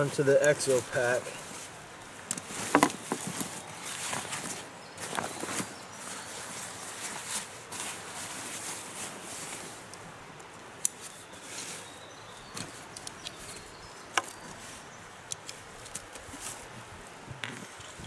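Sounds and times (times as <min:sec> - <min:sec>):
rustling of brush: 0:00.0 - 0:18.0
twigs snapping: 0:12.5 - 0:14.5, 0:15.2 - 0:16.6.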